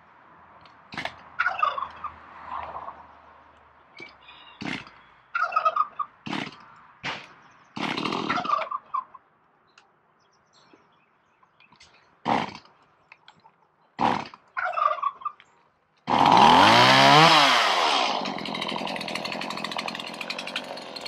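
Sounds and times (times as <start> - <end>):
chainsaw starter cord yanks: 16.1 - 21.0.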